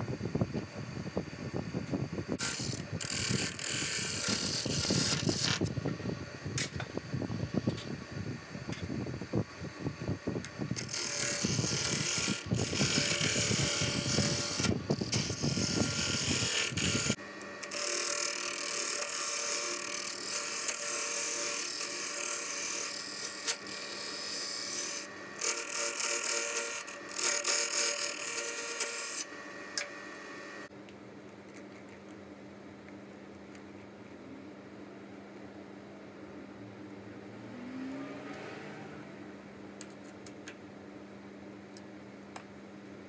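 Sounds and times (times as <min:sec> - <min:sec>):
lathe motor hum: 0:10.4 - 0:30.7
turning tool scraping wood: 0:10.8 - 0:29.3.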